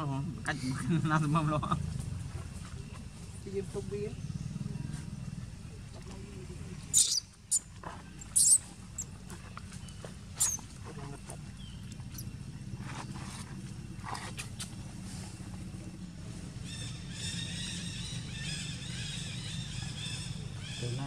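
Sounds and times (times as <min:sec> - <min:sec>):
steady low hum: 0:00.0 - 0:21.0
baby monkey squealing: 0:06.9 - 0:09.1, 0:10.4 - 0:10.7.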